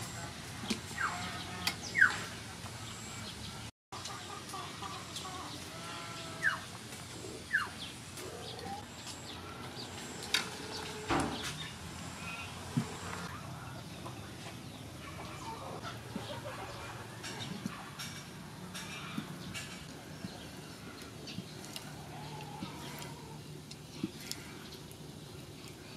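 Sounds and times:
bird calls: 0.9s - 2.4s.

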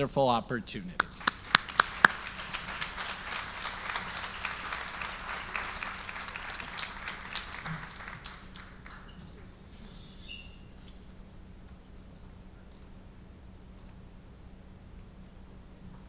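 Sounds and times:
loud sharp claps close by: 1.0s - 9.1s
audience applauding: 1.0s - 9.6s.

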